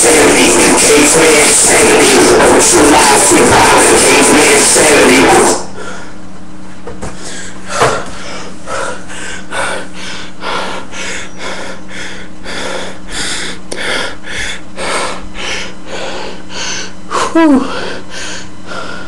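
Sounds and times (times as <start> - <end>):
steady low hum: 0.0 - 19.0
man panting hard: 7.1 - 19.0.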